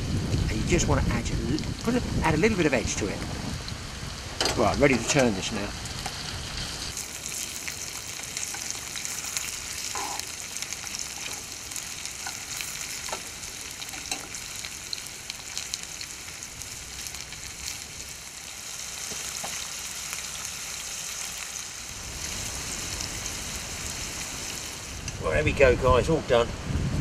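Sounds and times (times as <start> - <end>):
fish sizzling in oil: 3.6 - 25.1.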